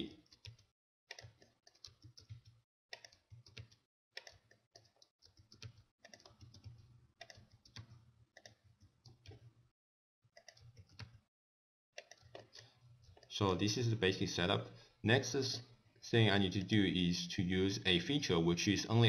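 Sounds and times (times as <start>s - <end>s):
mouse and keyboard clicking: 0.2s - 9.5s, 12.0s - 13.3s.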